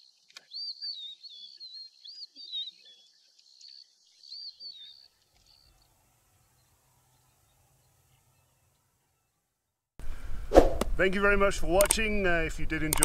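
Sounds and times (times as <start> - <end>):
birds warbling: 0.0 - 8.7
sharp click: 11.8 - 12.0.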